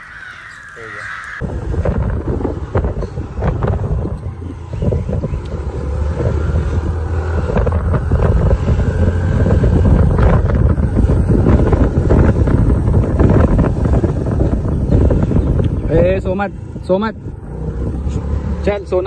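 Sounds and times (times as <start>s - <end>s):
wind buffeting microphone: 0.0s - 18.8s
road noise: 0.0s - 19.0s
motorbike engine: 1.4s - 19.0s.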